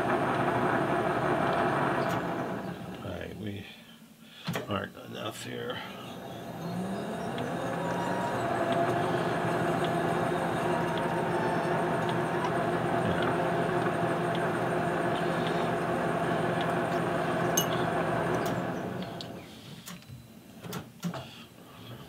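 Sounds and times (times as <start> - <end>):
lathe gear whine and hum: 0.0 - 3.0, 5.7 - 19.4
lathe winding down: 0.0 - 3.0, 6.0 - 19.4.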